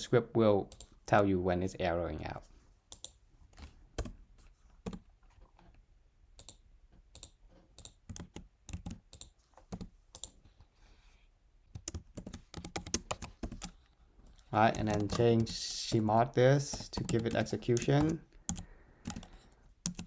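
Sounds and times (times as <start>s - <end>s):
computer keyboard typing: 2.9s - 3.2s, 4.8s - 5.0s, 6.4s - 10.4s, 11.7s - 13.8s, 14.4s - 20.0s.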